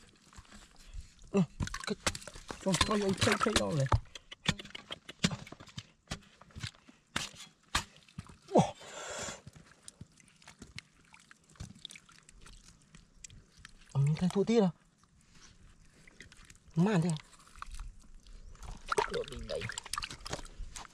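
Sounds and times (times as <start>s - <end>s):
shovel knocks and scrapes: 1.6s - 8.0s
hands splashing in muddy water: 9.6s - 14.4s, 15.9s - 20.9s.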